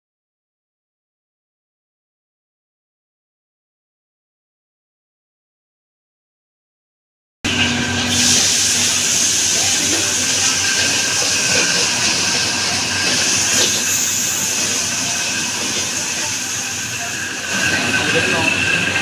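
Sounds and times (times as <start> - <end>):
pork sizzling in hot oil: 7.5 - 19.0.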